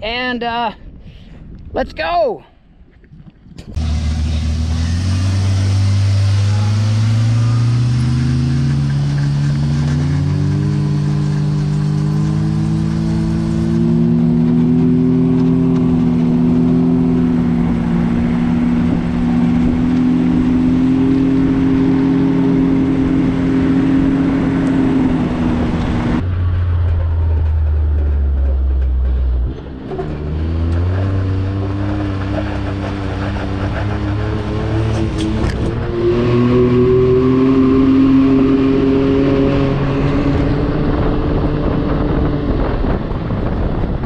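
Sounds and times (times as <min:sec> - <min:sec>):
road and wind noise: 0:00.0 - 0:44.0
utv engine accelerating: 0:03.6 - 0:44.0.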